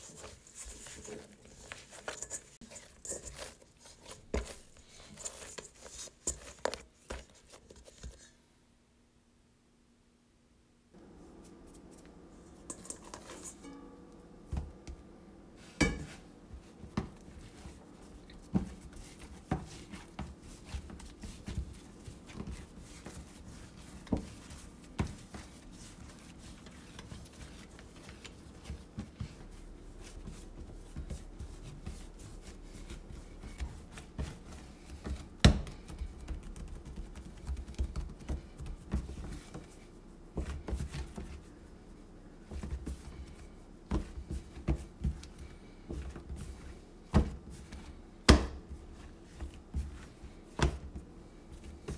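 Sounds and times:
dough thudding on countertop: 15.6s - 41.4s, 42.4s - 51.9s.

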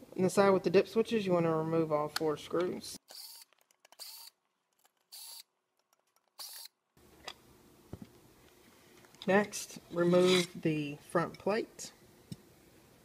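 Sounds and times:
screwdriver scraping screws: 3.1s - 6.7s.

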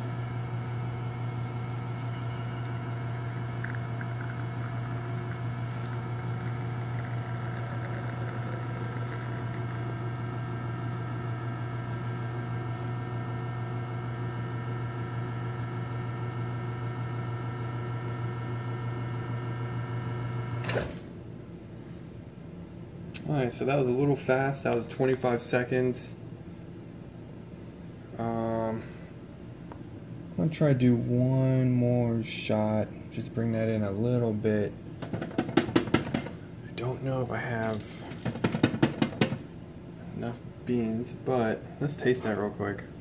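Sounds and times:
espresso machine pump humming: 0.0s - 21.0s.

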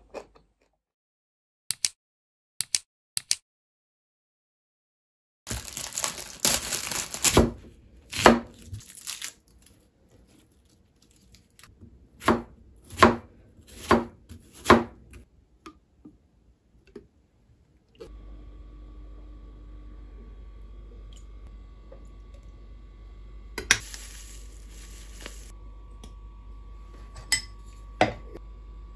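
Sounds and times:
onion skin crackling and tearing: 5.5s - 11.7s
chopping on a cutting board: 8.2s - 8.6s, 12.2s - 15.0s
low hum: 17.9s - 28.9s.

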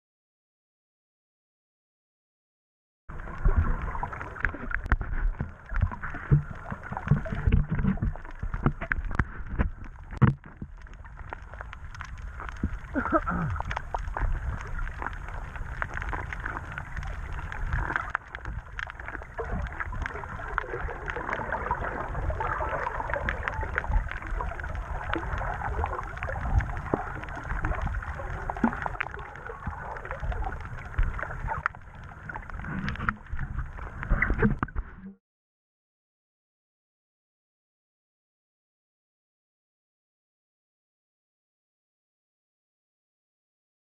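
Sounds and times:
muffled underwater water noise: 3.1s - 35.2s
sharp clicks and crackles: 3.2s - 35.1s.

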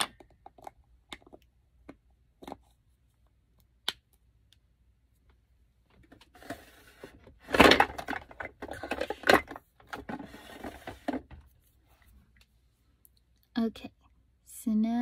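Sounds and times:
makeup items rustling and clattering: 5.9s - 12.4s.

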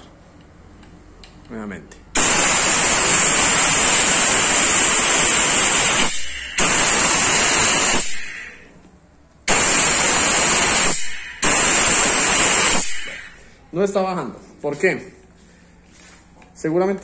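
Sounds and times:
compressed air hissing: 2.2s - 8.7s, 9.5s - 13.5s.

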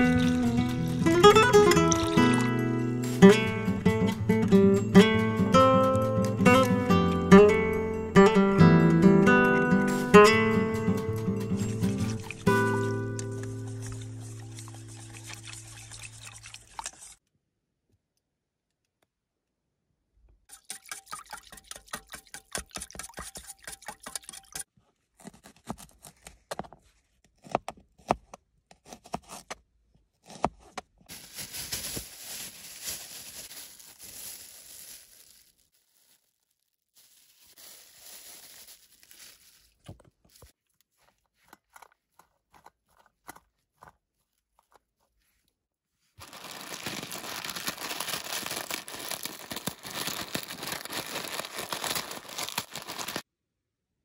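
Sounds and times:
vegetables stirred in metal bowl: 0.0s - 2.6s, 11.4s - 17.1s
batter mixed in metal bowl: 0.0s - 3.2s, 11.3s - 17.2s
guitar music: 0.0s - 14.7s.

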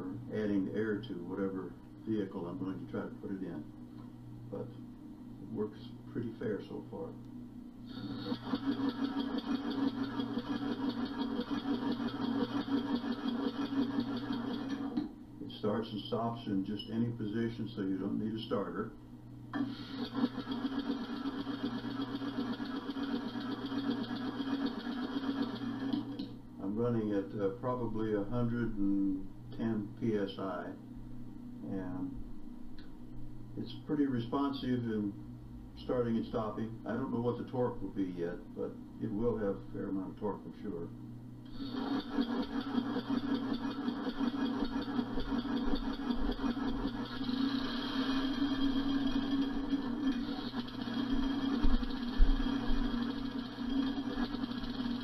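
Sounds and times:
compressed-air engine running: 7.9s - 15.0s, 19.6s - 26.3s, 41.5s - 55.0s
exhaust air pulsing: 7.9s - 15.0s, 41.5s - 55.0s.

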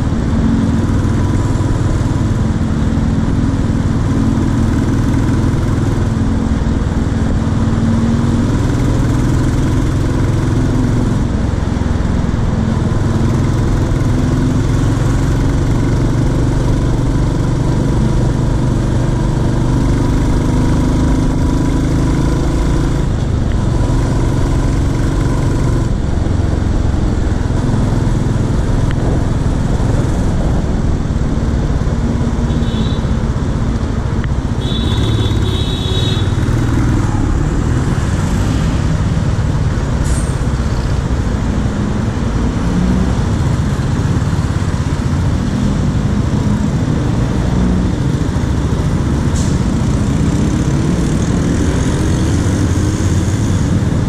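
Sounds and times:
motorcycle engine running: 0.0s - 40.0s
road and wind noise: 0.0s - 54.0s.

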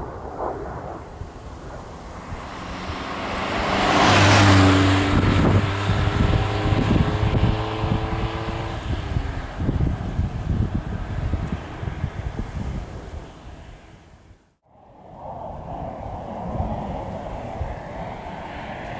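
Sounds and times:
car driving past: 1.8s - 9.2s.

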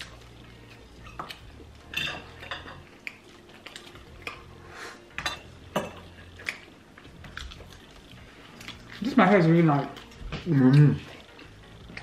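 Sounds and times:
cutlery clinking on plates: 1.0s - 3.0s, 5.1s - 6.6s.

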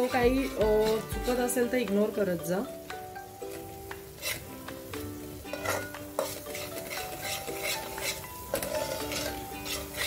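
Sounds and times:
light sizzle: 0.0s - 10.0s
ladle scraping a metal pot: 4.2s - 4.5s, 5.5s - 10.0s.

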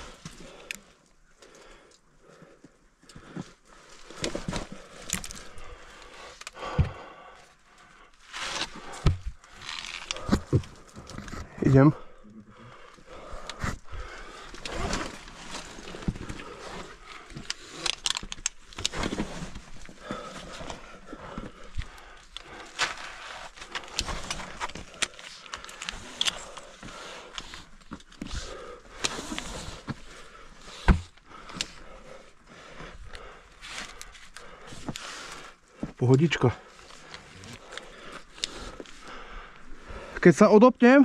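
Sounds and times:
gear clinking against rock: 12.9s - 30.3s.

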